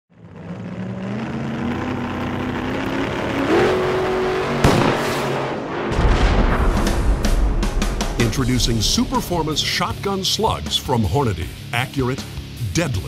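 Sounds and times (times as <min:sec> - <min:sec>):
rising drone: 0:00.1 - 0:10.5
sharp impact hit: 0:04.6 - 0:10.4.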